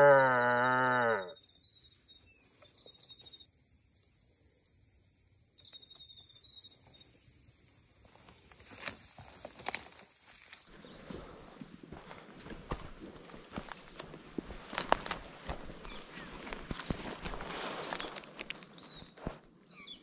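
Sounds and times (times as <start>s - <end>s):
footsteps through undergrowth: 8.0s - 20.0s.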